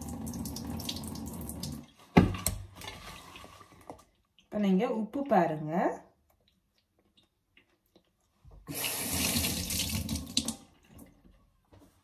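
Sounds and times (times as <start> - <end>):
water running into a sink: 0.0 - 1.9, 8.6 - 11.0.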